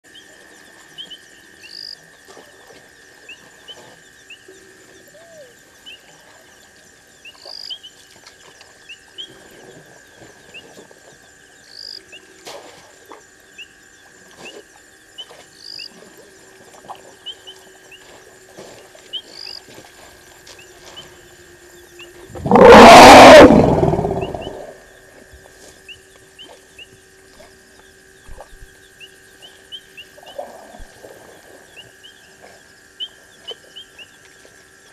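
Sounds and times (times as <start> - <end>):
insect trill: 0.1 - 8.1, 11.2 - 12.3, 19.1 - 34.9
elephant call: 22.3 - 24.8.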